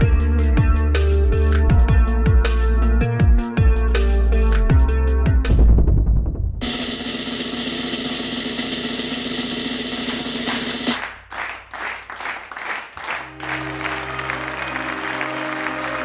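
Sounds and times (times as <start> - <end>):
drum roll: 5.5 - 11.2
sustained music chords: 13.1 - 16.0.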